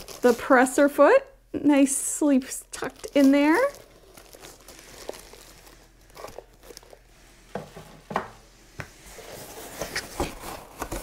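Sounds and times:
plastic bag crinkling: 0.0s - 1.0s, 2.5s - 7.1s
foam packing handled in box: 2.8s - 7.0s, 9.2s - 11.0s.

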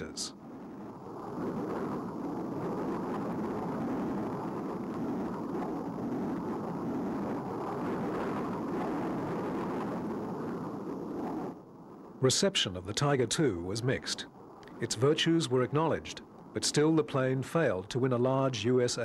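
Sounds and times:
jet engine rushing: 0.0s - 19.0s.

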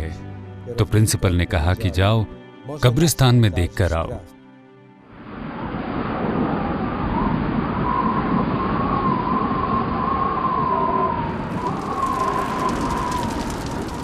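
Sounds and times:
thin wavering whistle-like tone: 6.6s - 13.8s
loud rumble: 11.2s - 14.0s.

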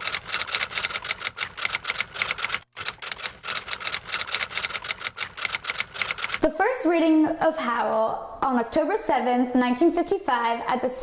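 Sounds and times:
typewriter keystrokes: 0.0s - 6.4s.

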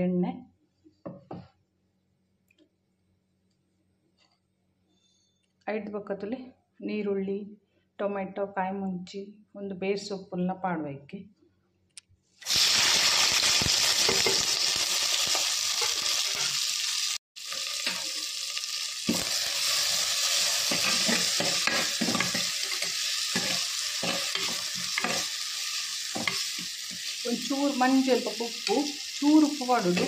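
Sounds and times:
vegetables sizzling in hot oil: 12.4s - 30.0s
spoon scraping and knocking pot: 20.6s - 25.3s, 26.1s - 27.1s.

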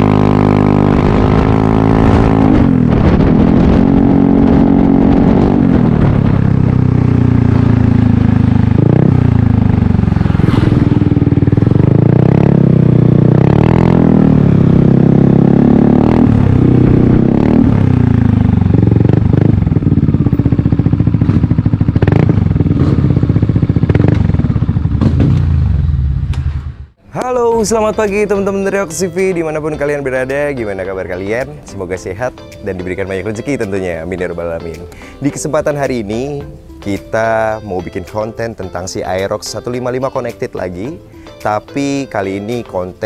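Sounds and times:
scooter engine revving: 0.0s - 26.6s.

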